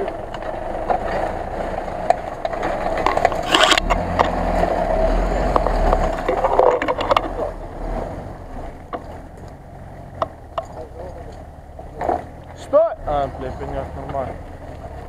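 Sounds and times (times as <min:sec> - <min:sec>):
branches cracking: 0:00.0 - 0:07.9
pickup engine rumbling: 0:00.0 - 0:15.0.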